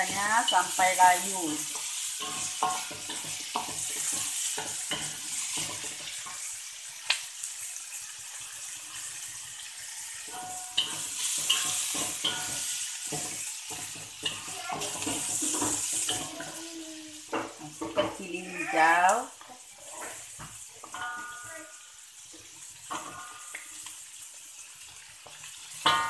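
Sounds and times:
wooden spatula scraping a wok: 0.0s - 6.6s, 9.0s - 16.5s
shallots sizzling in hot oil: 0.0s - 26.0s.

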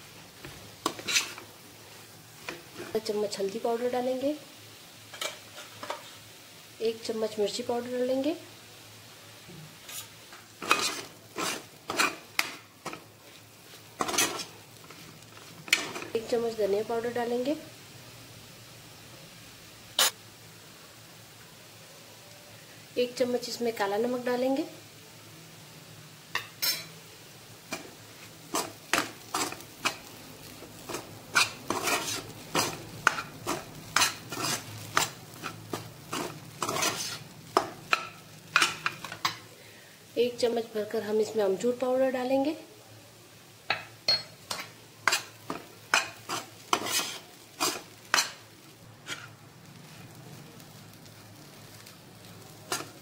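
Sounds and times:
spoon scraping a pan: 0.8s - 1.5s, 5.1s - 6.2s, 9.8s - 16.2s, 20.0s - 20.2s, 26.4s - 26.9s, 27.7s - 39.5s, 43.7s - 48.4s, 49.0s - 49.4s, 52.6s - 53.0s.

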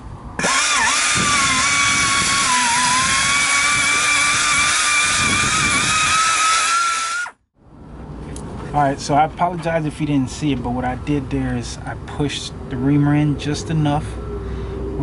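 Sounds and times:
high-pitched tool whine: 0.4s - 7.4s.

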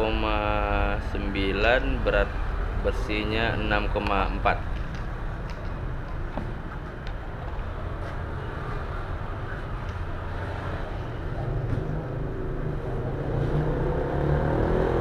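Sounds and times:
vehicle engine passing: 7.8s - 15.0s.

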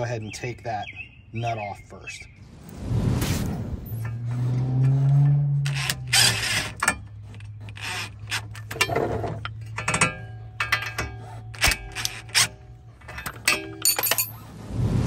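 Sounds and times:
socket clinking on nut: 8.3s - 14.4s.

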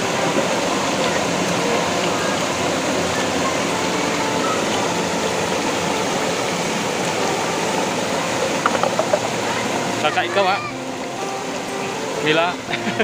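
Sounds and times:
river rapid pouring over rocks: 0.0s - 13.0s.

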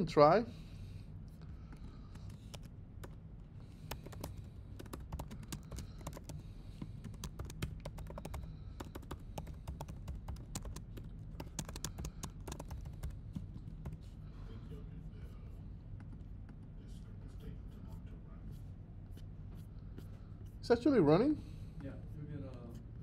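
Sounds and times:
low steady hum: 0.0s - 23.0s
computer keyboard typing: 1.8s - 3.2s, 3.8s - 14.1s.

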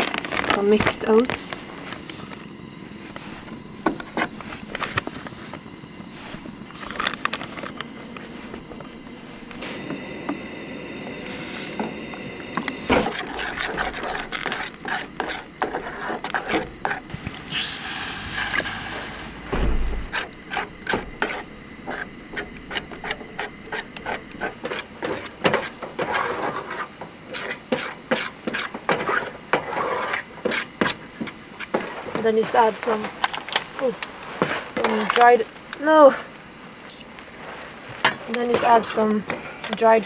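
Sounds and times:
metal spoon stirring in pot: 12.5s - 19.4s, 20.0s - 32.0s.

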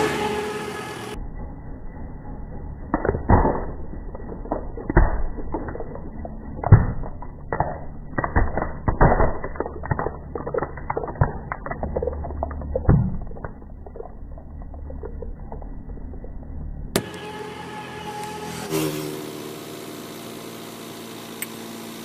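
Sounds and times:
plastic cracking and snapping: 3.0s - 15.6s.

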